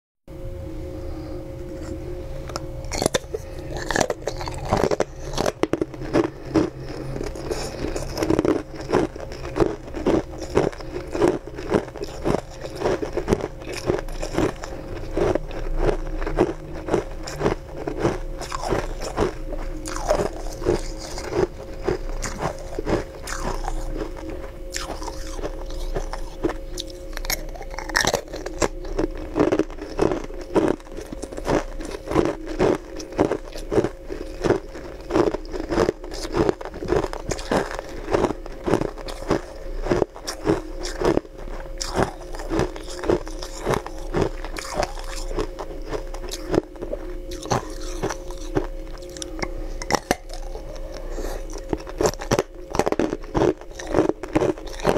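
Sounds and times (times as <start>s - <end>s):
faint musical tone: 0.3s - 54.9s
ice crunching between teeth: 1.8s - 54.9s.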